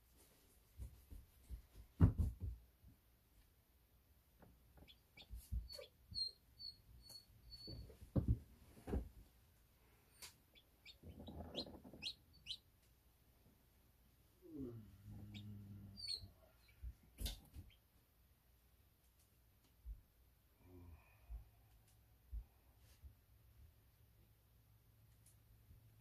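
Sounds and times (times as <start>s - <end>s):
chicks peeping: 4.8s - 7.8s, 10.2s - 12.7s, 15.2s - 17.8s
chicks scuffling against eggshells: 10.5s - 12.6s.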